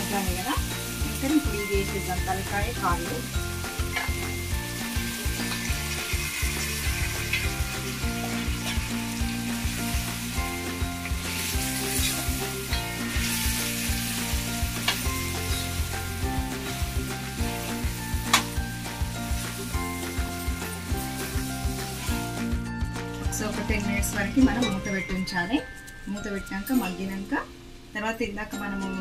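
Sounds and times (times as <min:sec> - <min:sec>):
meat sizzling in a pan: 0:00.0 - 0:22.6
background music: 0:00.0 - 0:29.0.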